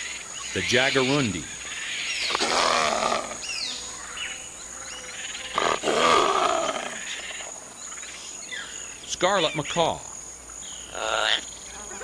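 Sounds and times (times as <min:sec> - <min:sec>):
high insect drone: 0:00.0 - 0:12.0
wild cat snarling: 0:02.3 - 0:03.4, 0:05.5 - 0:07.4.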